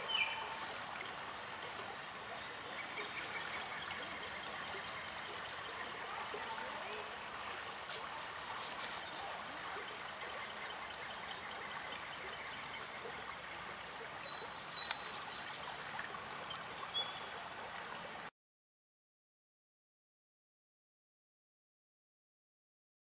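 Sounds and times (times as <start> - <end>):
bird singing and trilling: 0.0 - 0.6, 14.2 - 17.3
shallow stream running: 0.0 - 18.3.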